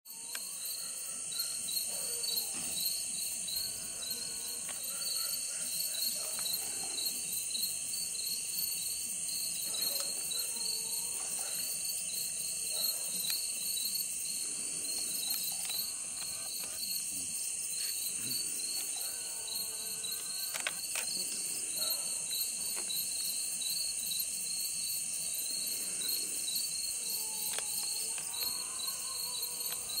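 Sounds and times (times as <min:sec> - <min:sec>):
crickets and insects trilling: 0:00.1 - 0:30.0.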